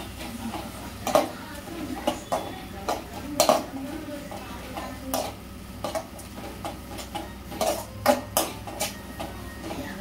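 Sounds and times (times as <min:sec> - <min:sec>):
spoon scraping metal pan: 0:04.8 - 0:10.0.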